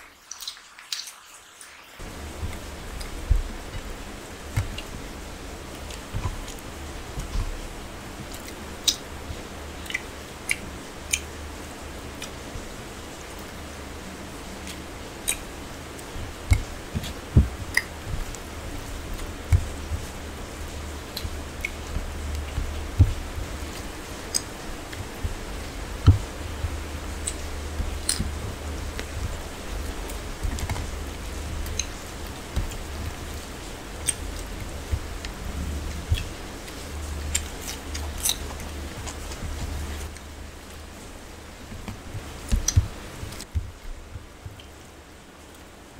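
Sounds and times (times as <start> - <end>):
dull thumps: 2.0 - 8.4, 16.0 - 44.6
steady low hum: 2.0 - 45.9
sharp clicks and smacks: 8.2 - 11.4, 14.6 - 40.8, 41.7 - 44.8
fingers squishing rice: 14.6 - 41.0
chewing: 19.0 - 40.3
person chewing: 34.0 - 40.2.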